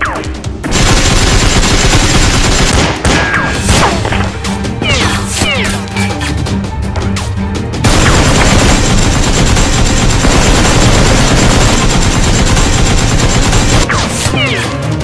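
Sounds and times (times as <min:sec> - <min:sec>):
machine-gun fire sound effect: 0:00.7 - 0:03.0, 0:07.8 - 0:14.2.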